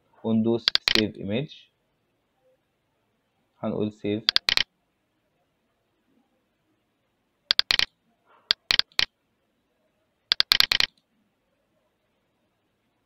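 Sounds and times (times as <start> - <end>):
computer mouse clicking: 0.7 - 1.1, 4.3 - 4.7, 7.5 - 7.9, 8.5 - 9.1, 10.3 - 11.0.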